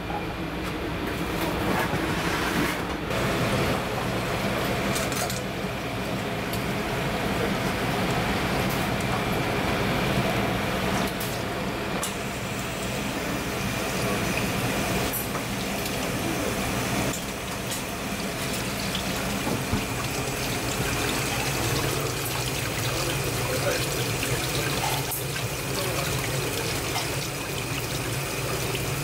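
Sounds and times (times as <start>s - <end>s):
tap water splashing into metal sink: 18.5s - 28.8s.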